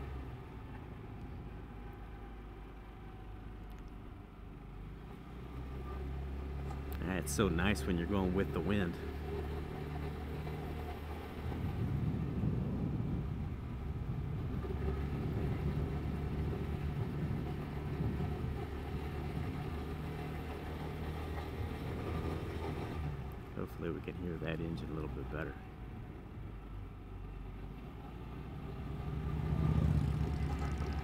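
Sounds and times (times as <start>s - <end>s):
road and wind noise: 0.0s - 31.0s
scooter engine running: 29.8s - 31.0s.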